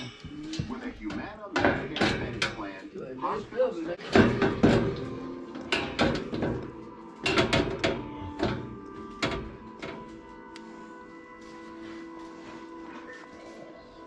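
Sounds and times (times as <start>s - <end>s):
metal grille knocking and clattering: 0.0s - 2.9s, 4.0s - 10.4s
background music: 0.0s - 14.0s.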